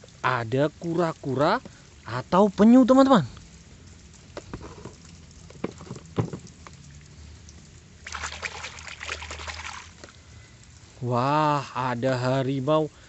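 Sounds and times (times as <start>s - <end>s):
hand splashing in puddle: 8.0s - 10.1s.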